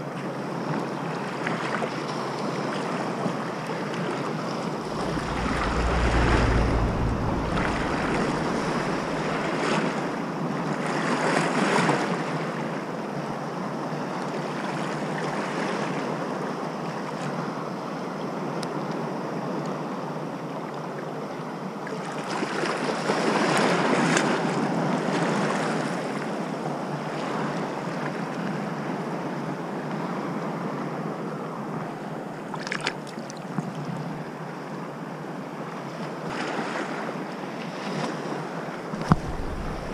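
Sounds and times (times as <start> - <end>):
wind buffeting microphone: 4.8 - 10.4, 38.9 - 39.9
sea water lapping: 39.0 - 39.9.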